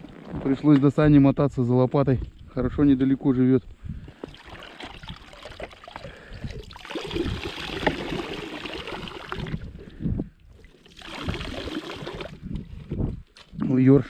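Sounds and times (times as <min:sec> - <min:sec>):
water running and splashing: 0:04.1 - 0:12.8.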